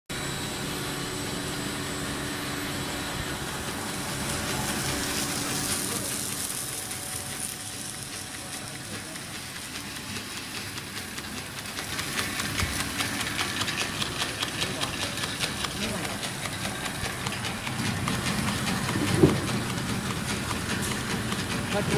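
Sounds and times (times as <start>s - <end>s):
machine hum: 0.1s - 21.9s
hiss: 3.7s - 17.8s
fast regular ticking: 4.4s - 21.9s.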